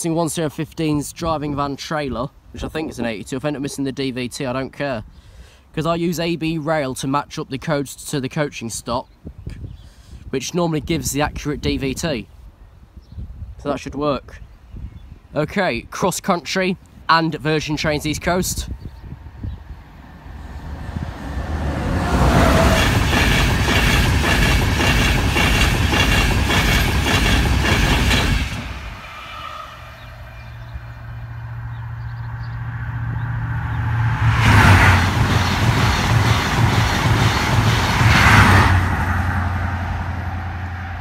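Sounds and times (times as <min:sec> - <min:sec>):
express trains passing at speed: 0:19.2 - 0:41.0.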